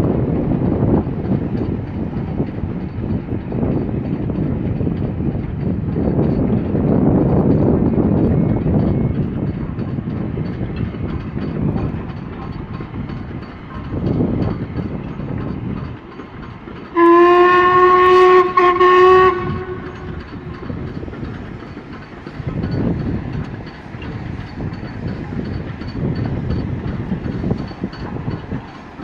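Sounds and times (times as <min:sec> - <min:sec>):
steam locomotive rumbling past: 0:00.0 - 0:29.0
steam whistle blast: 0:17.0 - 0:20.0.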